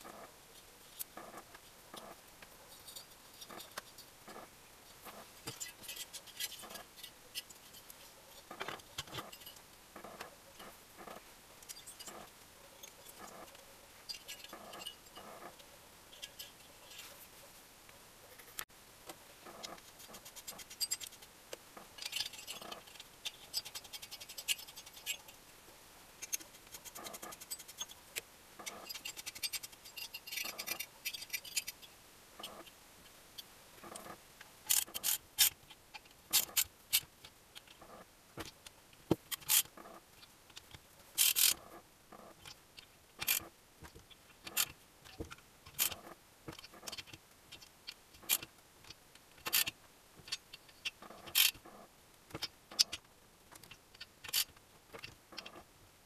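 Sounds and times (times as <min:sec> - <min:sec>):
nuts and washers clicking: 0:40.5 - 0:41.6.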